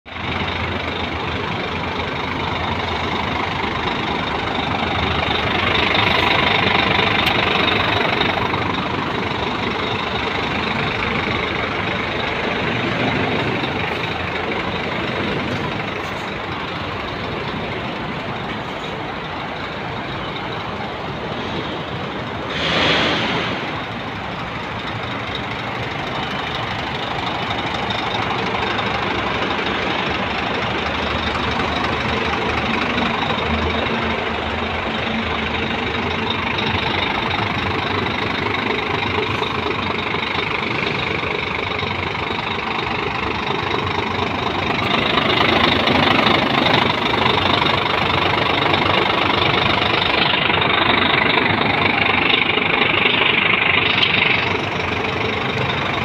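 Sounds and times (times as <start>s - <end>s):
diesel engine idling: 0.0s - 56.0s
hissing air rush: 22.4s - 24.0s.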